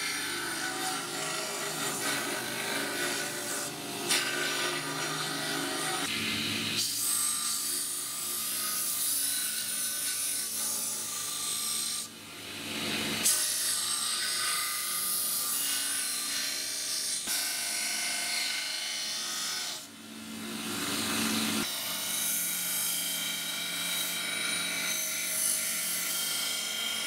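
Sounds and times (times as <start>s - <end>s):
belt grinder grinding steel: 0.0s - 6.1s.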